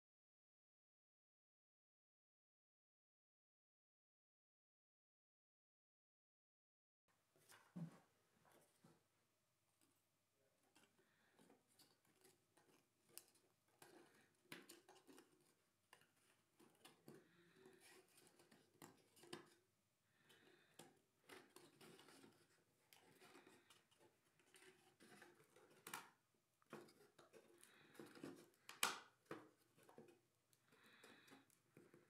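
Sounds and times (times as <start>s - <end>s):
wooden parts clicking and tapping: 10.7s - 19.6s, 20.2s - 32.0s.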